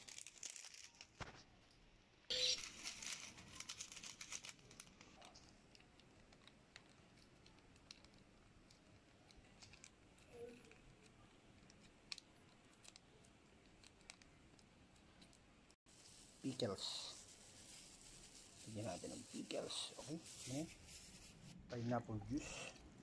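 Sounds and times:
foil sachet crinkling: 0:00.0 - 0:01.4, 0:02.3 - 0:08.2.

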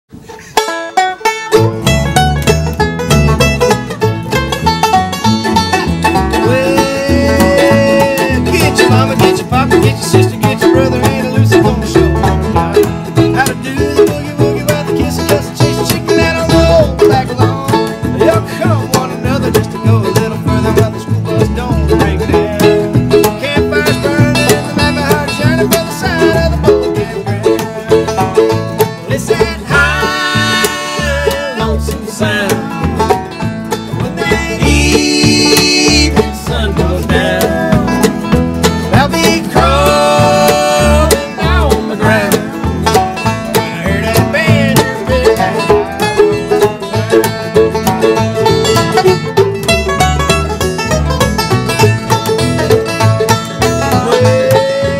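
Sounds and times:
bluegrass band playing: 0:00.1 - 0:54.9
man singing: 0:06.3 - 0:33.3, 0:34.0 - 0:46.4, 0:53.6 - 0:54.9.

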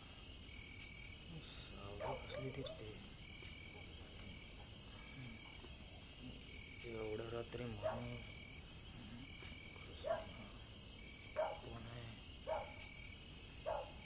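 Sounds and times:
frogs croaking: 0:00.0 - 0:14.0
insects chirping: 0:00.0 - 0:14.0.

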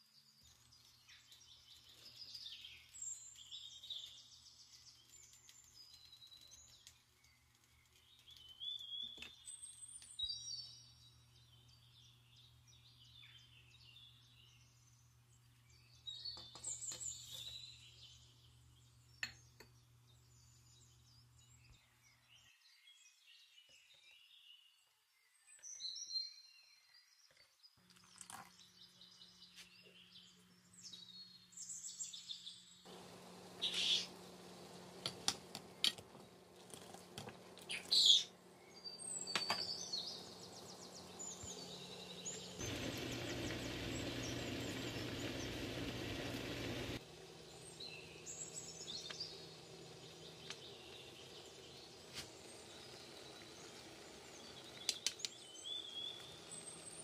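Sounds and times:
small birds chirping: 0:00.0 - 0:57.0
low steady hum: 0:32.9 - 0:57.0
water simmering in saucepan: 0:32.9 - 0:57.0.

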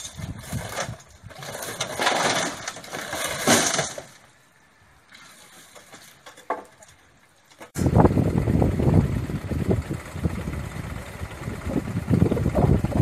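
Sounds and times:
mud and stones pouring into trailer: 0:00.0 - 0:04.2
scraping and small knocks: 0:00.0 - 0:04.3, 0:05.1 - 0:07.8.

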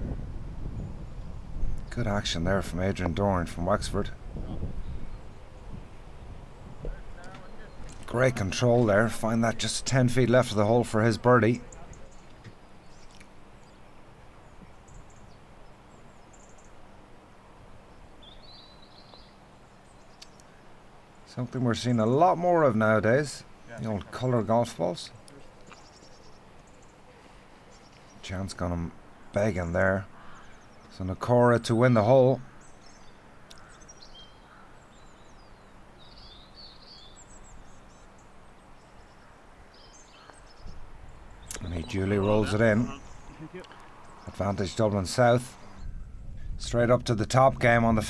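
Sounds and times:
faint outdoor ambience: 0:00.0 - 0:48.0
bird chirping trill: 0:04.5 - 0:16.9, 0:17.8 - 0:20.8, 0:21.7 - 0:27.1, 0:32.4 - 0:46.4.

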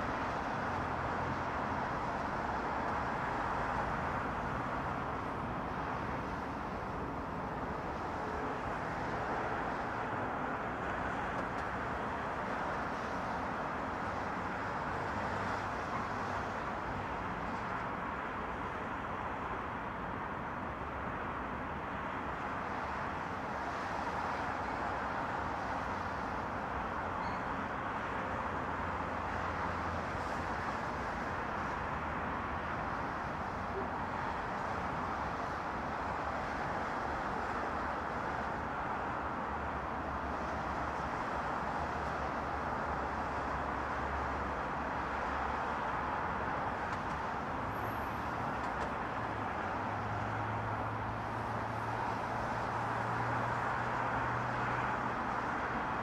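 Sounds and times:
distant highway traffic hum: 0:00.0 - 0:56.0.

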